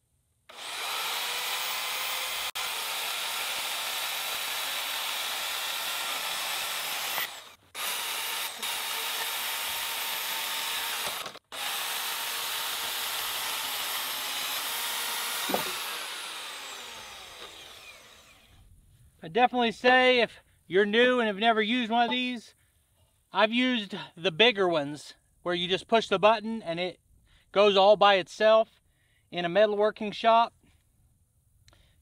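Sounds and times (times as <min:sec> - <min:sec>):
bandsaw cutting metal pipe: 0:00.5 - 0:18.5
saw motor winding down: 0:00.5 - 0:18.6
sharp knock: 0:15.5 - 0:15.8.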